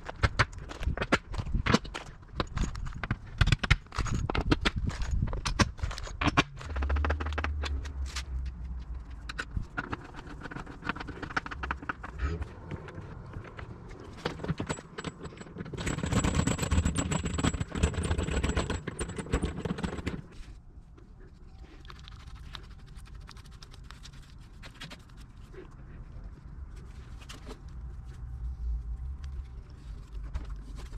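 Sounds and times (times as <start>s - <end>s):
clicking and scraping on hardware: 0.2s - 20.6s
brush strokes: 21.2s - 25.7s.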